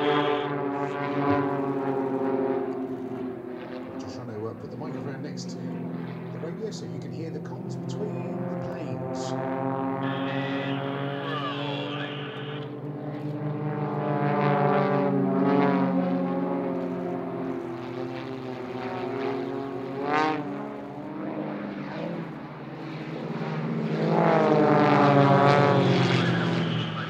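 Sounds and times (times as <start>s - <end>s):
propeller plane engines: 0.0s - 27.0s.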